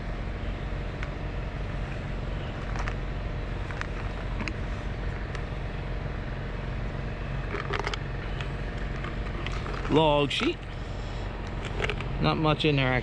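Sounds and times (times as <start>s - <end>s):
low mechanical hum: 0.0s - 13.0s
container clicks and rattles: 7.5s - 8.0s, 8.8s - 10.6s, 11.6s - 12.1s.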